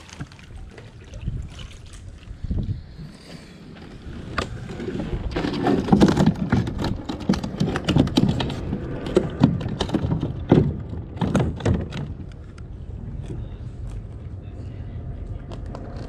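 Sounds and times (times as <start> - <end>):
gear clicking and knocking: 5.4 - 12.4.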